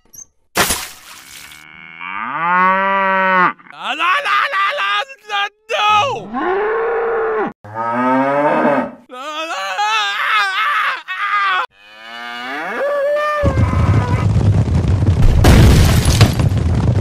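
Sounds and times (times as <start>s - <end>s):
cows mooing: 1.6s - 3.8s, 6.2s - 9.1s, 11.7s - 13.6s.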